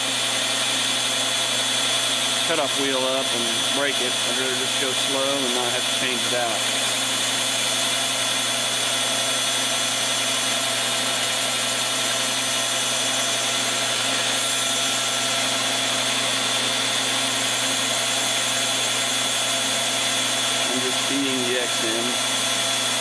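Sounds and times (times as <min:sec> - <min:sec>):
rotary tool whining: 0:00.0 - 0:23.0.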